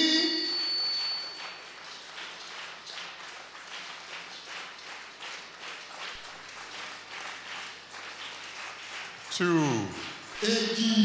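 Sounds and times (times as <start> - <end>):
congregation clapping in rhythm: 0.0 - 11.0.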